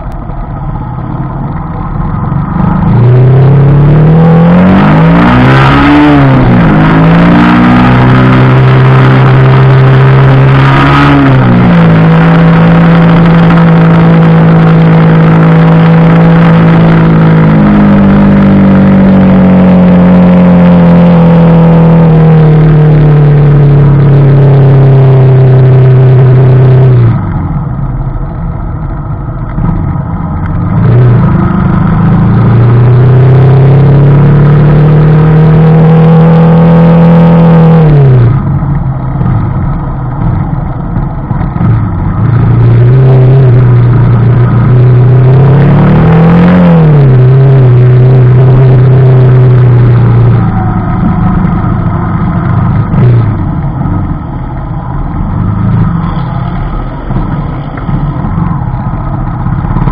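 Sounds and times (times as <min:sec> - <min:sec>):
motorcycle engine running loud: 0:00.0 - 0:59.9.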